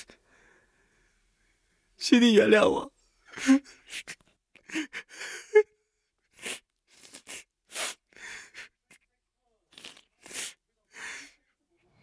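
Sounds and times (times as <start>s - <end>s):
man sobbing and sniffling: 3.2s - 9.0s.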